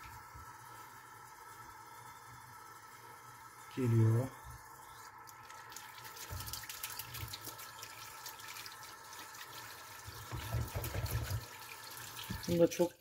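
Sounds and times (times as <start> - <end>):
tap water splashing into sink: 5.3 - 12.9
dull knocks: 10.3 - 11.4.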